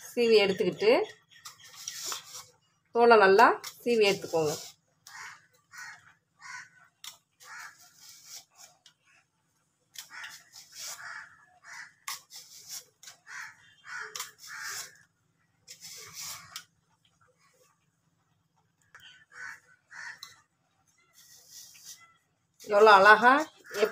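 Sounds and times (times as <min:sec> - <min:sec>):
knife scraping mango skin: 0:01.3 - 0:02.6, 0:03.6 - 0:05.4, 0:07.0 - 0:08.9, 0:09.9 - 0:16.7, 0:21.0 - 0:22.8.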